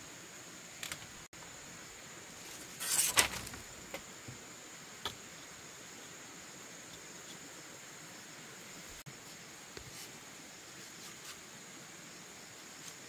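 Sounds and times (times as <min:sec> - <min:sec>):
insect buzzing: 0:00.0 - 0:13.0
bamboo slats clattering: 0:02.6 - 0:04.1.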